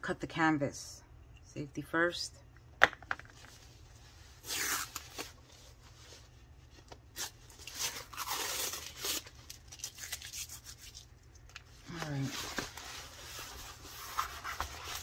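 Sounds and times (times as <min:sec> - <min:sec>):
plastic wrapping tearing: 0:04.4 - 0:05.4, 0:07.1 - 0:11.6.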